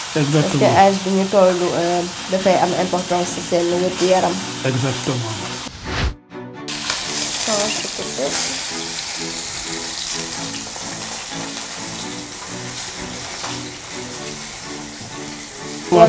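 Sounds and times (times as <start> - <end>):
turkey sizzling in hot oil: 0.0 - 5.7, 6.7 - 16.0
background music: 0.0 - 16.0.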